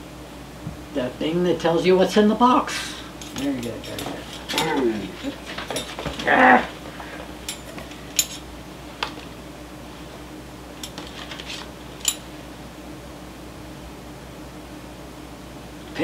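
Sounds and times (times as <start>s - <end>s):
faint steady hum: 0.0s - 16.0s
sharp clicks and metallic clinks: 3.2s - 4.8s, 12.0s - 12.3s.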